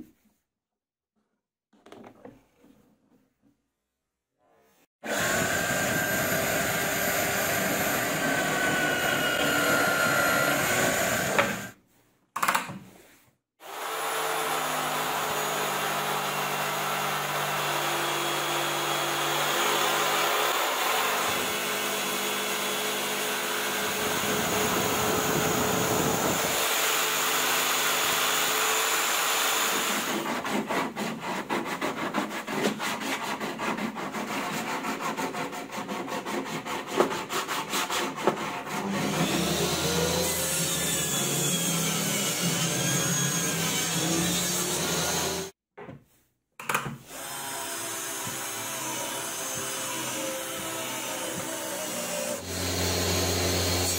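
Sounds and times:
jigsaw cutting plywood: 5.0 - 11.8, 13.6 - 45.6, 46.7 - 53.9
table saw humming: 5.0 - 11.8, 13.6 - 30.2, 47.1 - 53.9.

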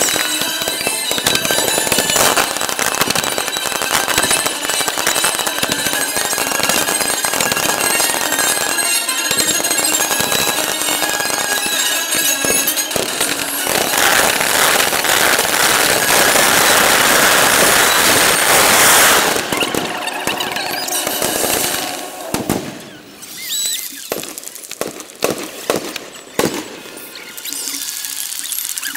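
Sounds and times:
firework whistles: 0.0 - 28.9
fireworks crackling and banging: 0.0 - 28.9.

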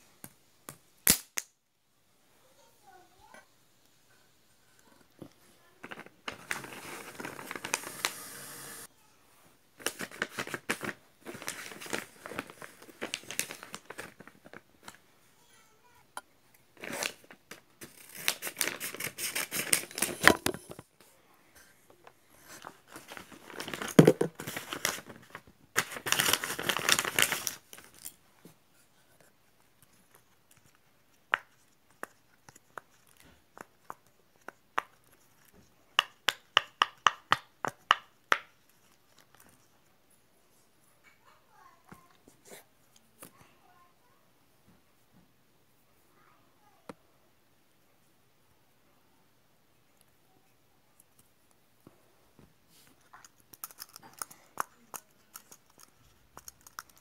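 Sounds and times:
paper ripping and crinkling: 6.2 - 8.9, 17.8 - 20.4, 22.5 - 28.0.

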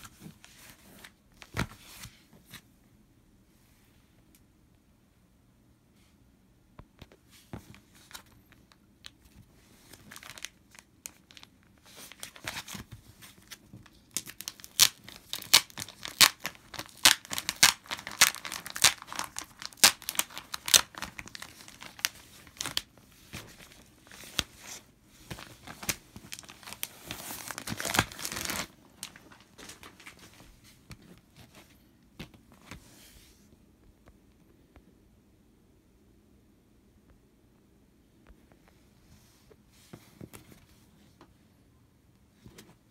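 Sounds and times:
plastic shrink wrap crinkling: 9.0 - 31.6
plastic wrap tearing: 9.9 - 12.8, 13.4 - 22.9, 25.4 - 30.2.

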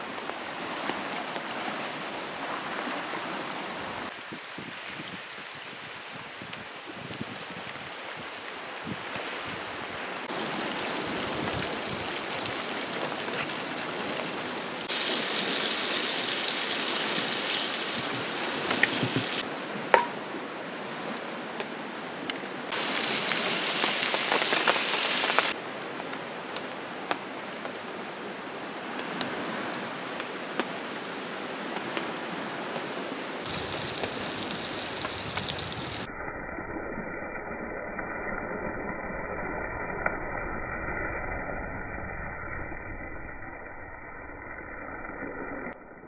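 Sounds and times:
rain hissing: 4.0 - 20.2, 22.6 - 25.6, 28.8 - 41.9
food sizzling in a skillet: 10.3 - 19.4, 22.7 - 25.6, 32.2 - 36.1.

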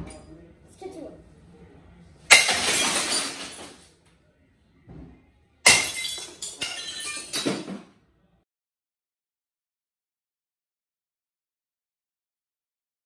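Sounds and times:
glass clinking: 2.3 - 3.8, 5.7 - 7.7
glass smashing: 2.3 - 3.9, 5.6 - 7.9.

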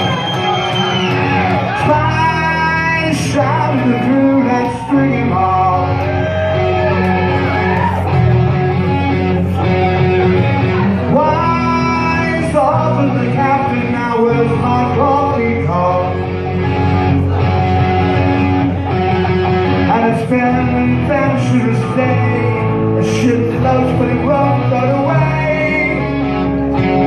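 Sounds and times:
rock band playing live: 0.0 - 27.0
man singing: 1.7 - 7.0, 11.0 - 16.5, 19.8 - 26.5.

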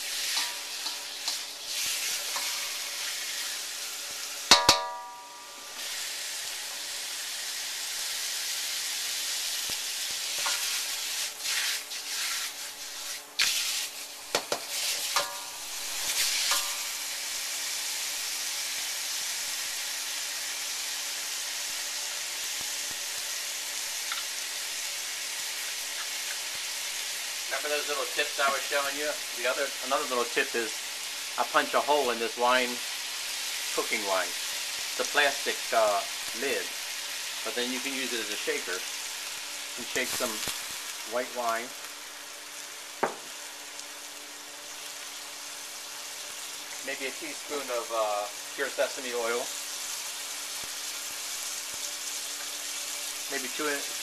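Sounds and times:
meat sizzling in a wok: 0.0 - 54.0
metallic clang: 4.5 - 5.6.

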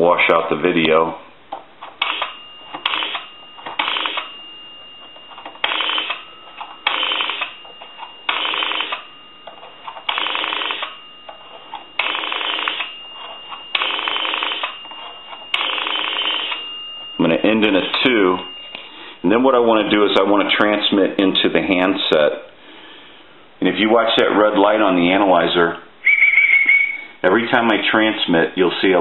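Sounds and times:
thin steady high tone: 0.0 - 22.1, 24.1 - 27.3
rotary dial clicking: 2.0 - 4.3.

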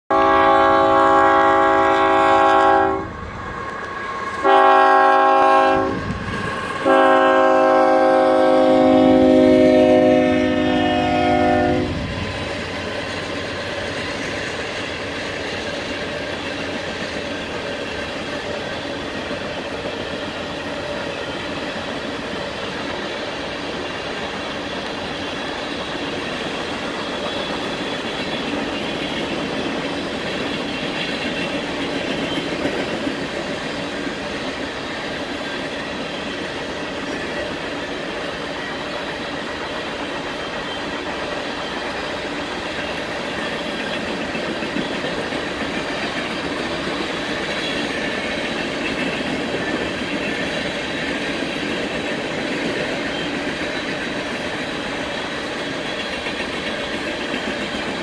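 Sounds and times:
locomotive horn blasts: 0.1 - 3.2, 4.4 - 6.1, 6.8 - 12.1
freight cars rumbling on rails: 0.1 - 58.0.

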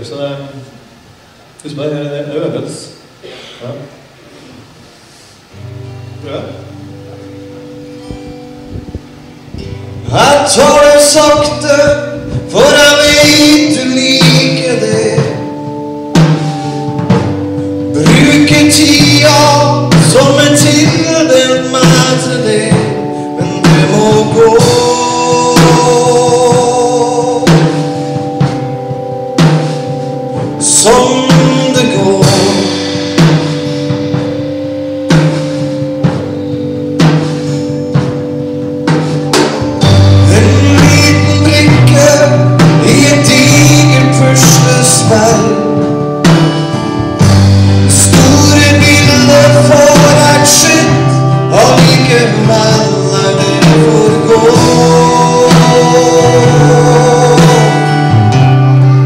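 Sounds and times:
live band playing: 0.0 - 59.0
man singing: 10.0 - 15.8, 17.9 - 28.2, 30.5 - 33.0, 39.9 - 46.3, 47.8 - 59.0.

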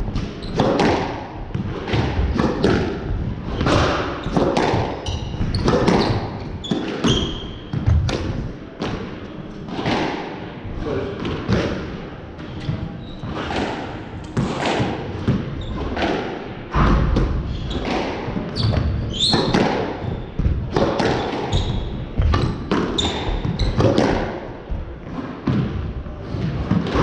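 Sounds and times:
squash ball impacts: 0.0 - 10.5, 11.2 - 12.0, 12.6 - 27.0
shoes squeaking on wooden floor: 3.6 - 7.8, 17.4 - 23.9.

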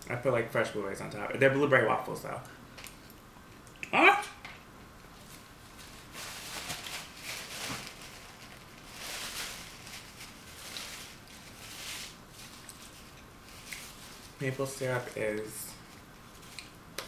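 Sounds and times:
paper napkin rustling: 5.1 - 16.7.

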